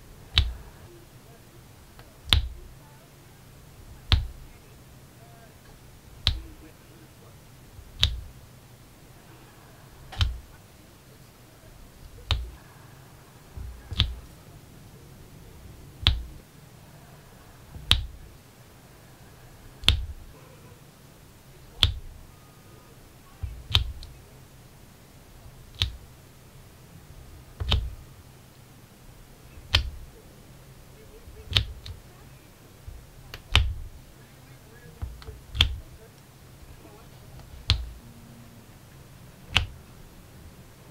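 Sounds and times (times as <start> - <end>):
placer tool clicking and thudding: 2.0 - 2.6, 4.0 - 4.5, 6.2 - 6.6, 7.8 - 8.4, 10.1 - 10.6, 11.9 - 12.6, 13.6 - 14.4, 16.0 - 16.4, 17.7 - 18.2, 19.8 - 20.3, 23.4 - 24.2, 25.6 - 26.1, 27.5 - 28.0, 29.6 - 30.1, 31.2 - 32.1, 32.9 - 34.0, 35.0 - 36.0, 37.4 - 38.0.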